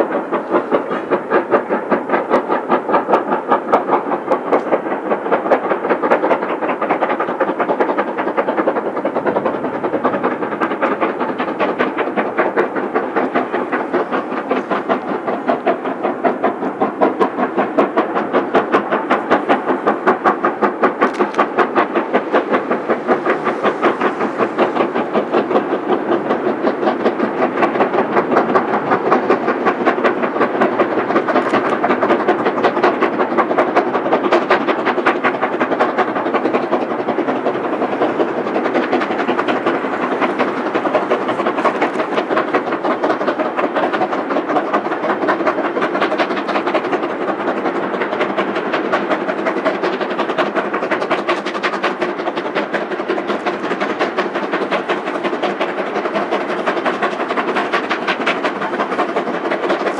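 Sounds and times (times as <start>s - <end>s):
steam locomotive exhaust beats: 0.0s - 59.9s.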